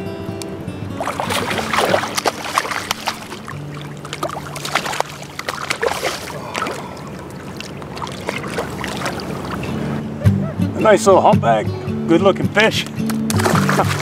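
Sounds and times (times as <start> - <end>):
fish splashing in water: 1.0 - 9.9, 13.3 - 14.0.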